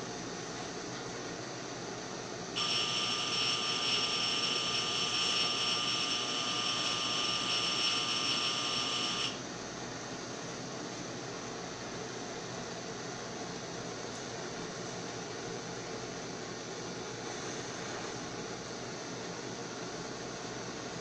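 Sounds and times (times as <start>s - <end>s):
electric blower motor whining: 2.6s - 9.4s.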